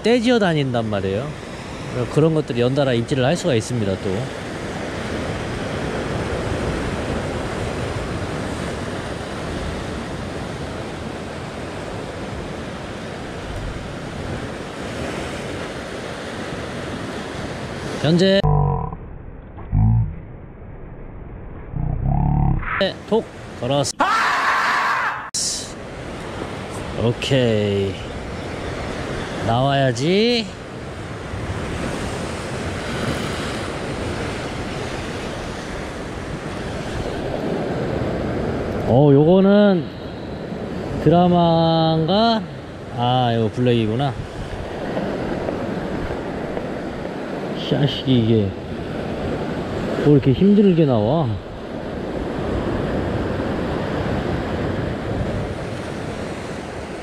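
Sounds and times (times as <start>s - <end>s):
ocean surf breaking over rocks: 0.1s - 18.4s, 25.8s - 57.0s
wind on microphone: 51.5s - 57.0s.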